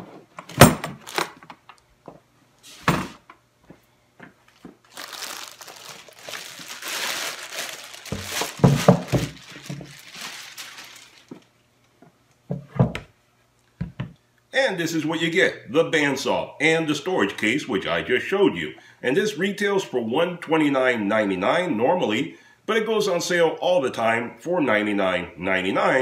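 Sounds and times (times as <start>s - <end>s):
plastic bag crinkling: 1.0s - 1.4s, 4.5s - 11.5s.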